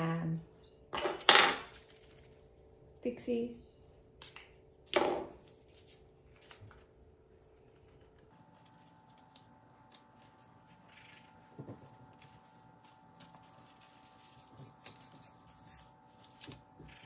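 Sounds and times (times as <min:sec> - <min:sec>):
paper crackling and rustling: 0:07.6 - 0:15.2, 0:16.0 - 0:17.0.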